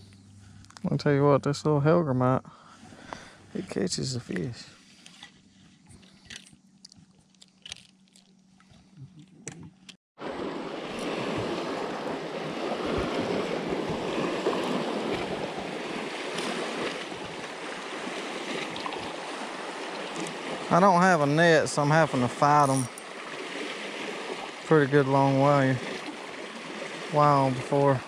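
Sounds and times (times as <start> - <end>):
water rushing at boat: 10.2 - 28.0.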